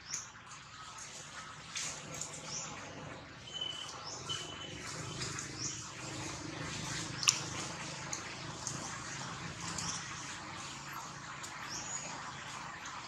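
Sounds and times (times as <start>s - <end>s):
birds chirping: 2.4s - 13.0s
steady whistles: 3.4s - 5.1s.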